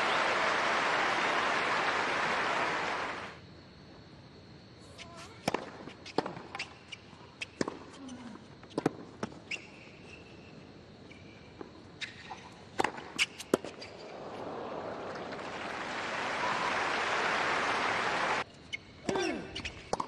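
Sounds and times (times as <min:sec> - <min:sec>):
crowd applause: 0:00.0 - 0:03.4, 0:14.0 - 0:18.4
sneaker squeaks: 0:04.9 - 0:14.4, 0:18.7 - 0:20.0
tennis ball bounces: 0:12.7 - 0:14.4.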